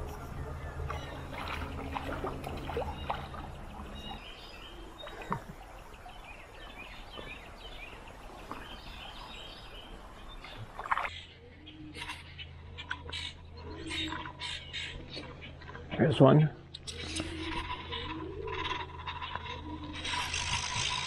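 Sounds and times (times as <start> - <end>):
stream water gurgling: 0.0 - 11.2
low steady hum: 0.0 - 21.0
small birds chirping: 0.0 - 21.0.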